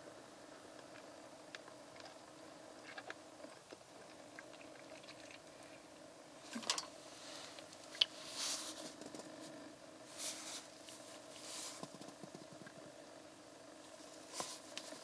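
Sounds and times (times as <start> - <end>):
faint steady hum: 0.0 - 15.0
gloved hands rubbing plastic: 10.1 - 12.4.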